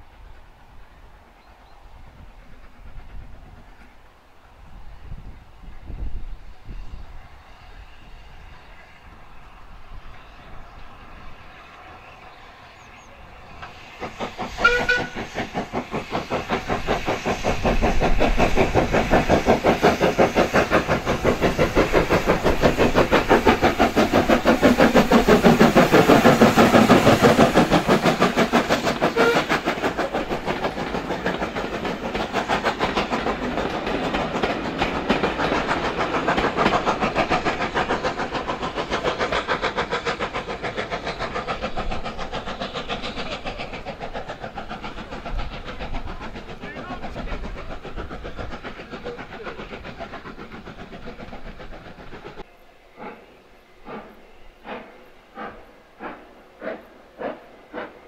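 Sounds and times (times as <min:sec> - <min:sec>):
steam locomotive exhaust beat: 0:00.0 - 0:58.0
steam locomotive whistle: 0:14.6 - 0:15.4, 0:28.9 - 0:29.9.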